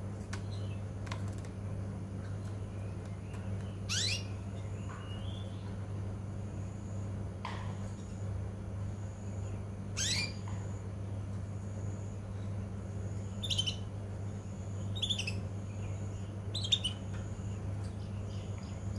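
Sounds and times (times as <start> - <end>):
steady low hum: 0.0 - 18.9
canary chirping: 3.7 - 5.6, 10.0 - 10.5, 13.2 - 13.9, 14.7 - 17.2.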